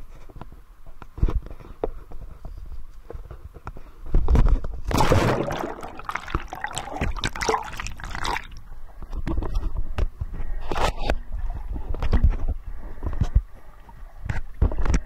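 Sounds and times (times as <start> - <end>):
muffled underwater bubbling: 4.9 - 8.6
water splashing and churning: 4.9 - 8.6.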